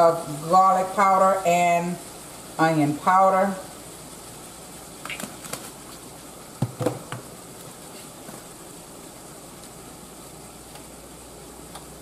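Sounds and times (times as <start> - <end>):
spice bottles knocking: 6.6 - 7.2.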